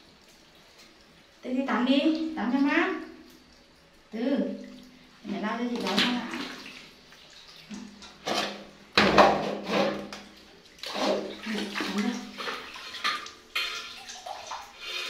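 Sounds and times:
water splashing in tub: 0.0 - 15.0.

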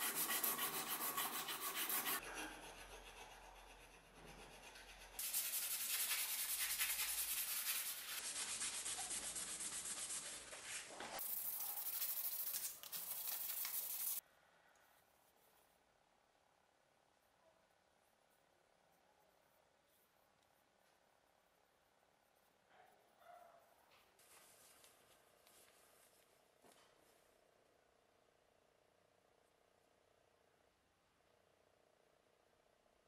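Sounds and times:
sandpaper rasping on wood: 0.0 - 10.6, 11.2 - 14.2.

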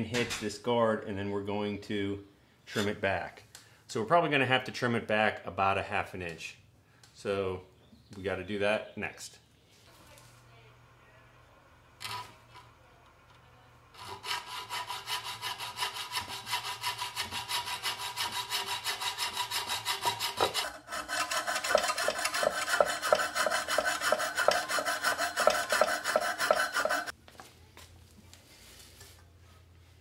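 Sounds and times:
hacksaw cutting aluminum: 14.0 - 27.1.

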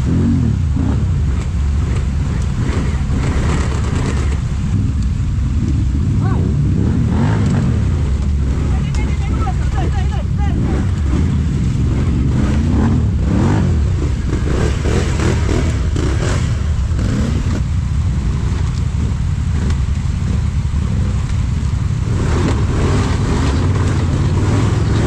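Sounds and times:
atv engine revving: 0.0 - 25.0.

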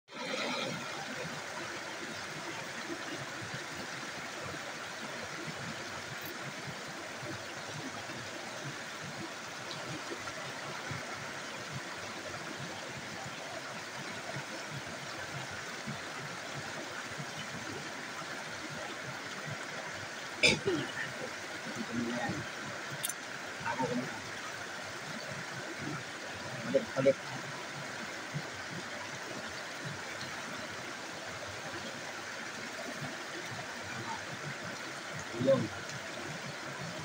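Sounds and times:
stream spilling over boulders: 0.1 - 37.0.

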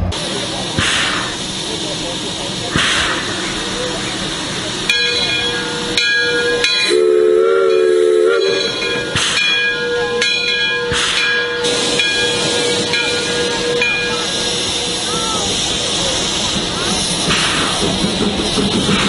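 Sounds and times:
steam hissing from locomotive: 0.0 - 19.0
steam locomotive chime whistle: 4.9 - 15.8.

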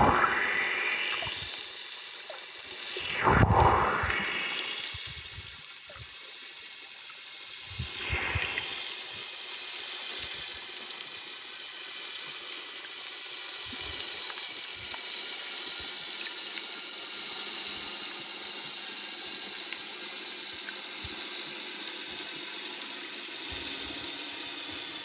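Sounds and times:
water sloshing underwater: 0.0 - 6.2.

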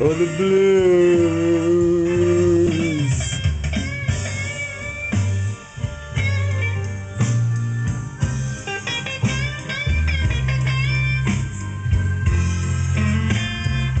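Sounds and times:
blues guitar music: 0.0 - 14.0
steady bass line: 0.0 - 14.0.

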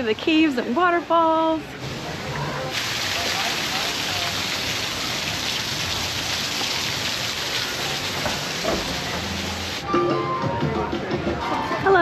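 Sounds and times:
waterfall rushing: 1.9 - 9.8.

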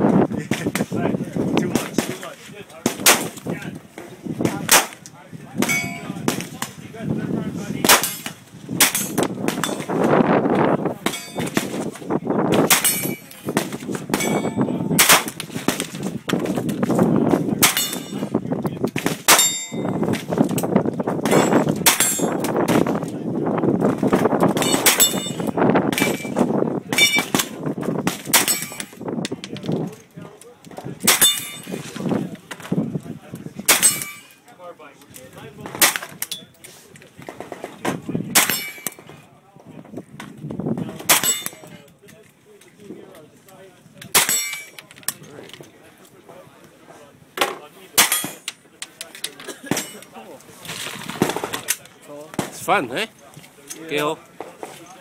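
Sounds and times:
carbine gunshots: 12.6 - 15.9.

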